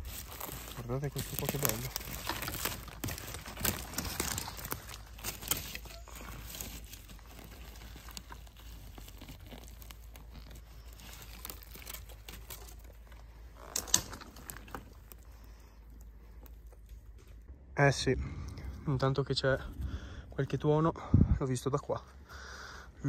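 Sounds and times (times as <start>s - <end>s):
rustling of dry leaf litter: 0.0s - 17.5s.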